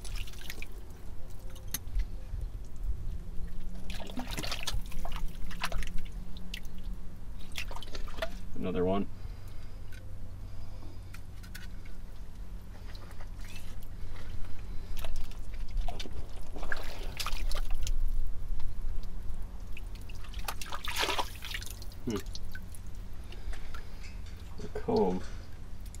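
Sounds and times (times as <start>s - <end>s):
liquid dripping and sloshing: 0.0s - 8.6s, 12.8s - 18.1s, 19.6s - 23.9s
steady low hum: 0.0s - 26.0s.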